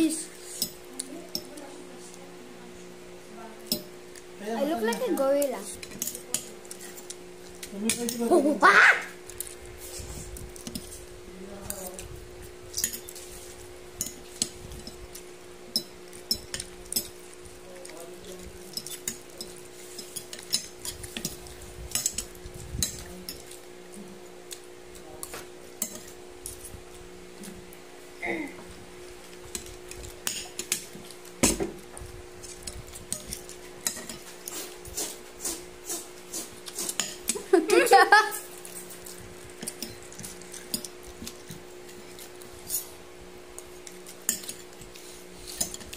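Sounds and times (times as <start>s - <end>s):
cutlery clinking on a plate: 18.7s - 23.5s.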